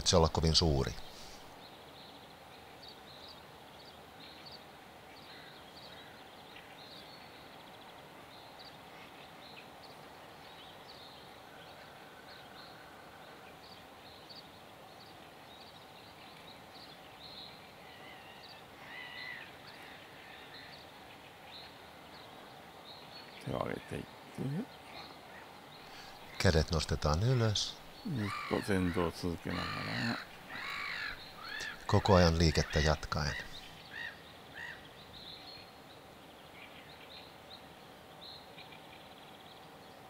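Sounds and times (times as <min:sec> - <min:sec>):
small birds chirping: 0:00.0 - 0:40.0
steady hiss: 0:00.0 - 0:40.0
loud bird call: 0:17.9 - 0:20.8, 0:24.9 - 0:34.9.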